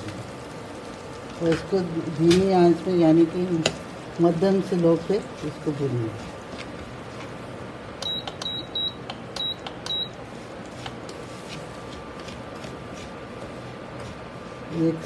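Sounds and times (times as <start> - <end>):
spoon tapping in pan: 8.0 - 10.0
cooktop short high beeps: 8.0 - 10.2.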